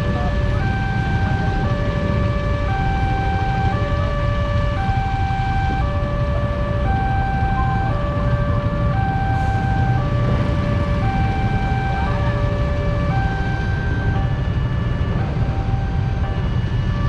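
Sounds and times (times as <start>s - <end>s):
level crossing alarm two-tone: 4.7s - 14.5s.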